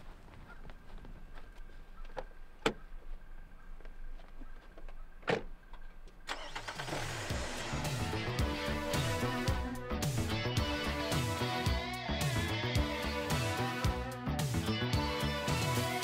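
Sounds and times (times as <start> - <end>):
guitar-driven rock music: 7.1 - 16.0.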